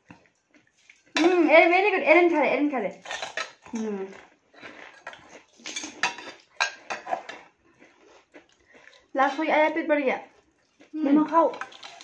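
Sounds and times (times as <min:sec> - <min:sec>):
metal spoon clinking on steel bowls: 0:02.9 - 0:03.8, 0:05.6 - 0:07.4.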